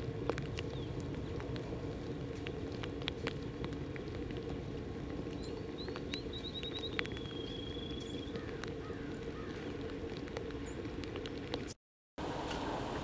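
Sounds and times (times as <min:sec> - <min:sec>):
sharp clicks of horses and wagons: 0:00.0 - 0:11.8
wagon wheels rumbling: 0:00.0 - 0:13.0
songbird singing: 0:00.6 - 0:01.5, 0:05.2 - 0:09.9, 0:10.5 - 0:10.9.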